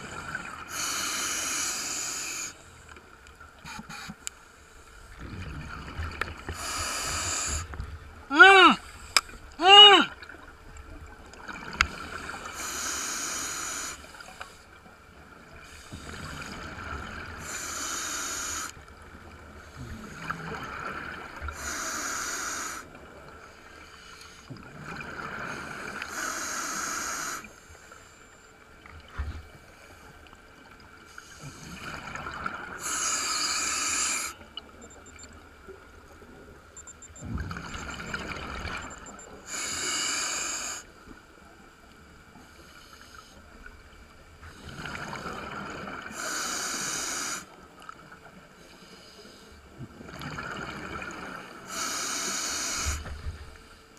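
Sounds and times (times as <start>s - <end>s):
diver breathing through regulator: 0.7s - 2.6s, 6.5s - 7.7s, 12.5s - 14.2s, 21.5s - 22.9s, 25.4s - 27.6s, 32.8s - 34.4s, 39.4s - 40.9s, 46.1s - 47.5s, 51.6s - 53.1s.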